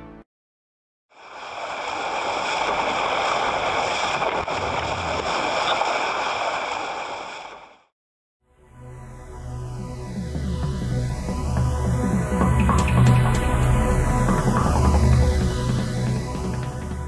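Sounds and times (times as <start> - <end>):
rushing water-like logo effect: 1.1 - 7.9, 10.1 - 17.0.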